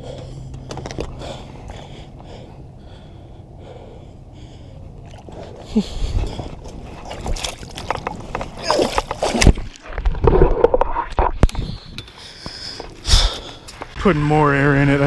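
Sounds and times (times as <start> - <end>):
man breathing hard: 0.0 - 6.9, 11.5 - 13.9.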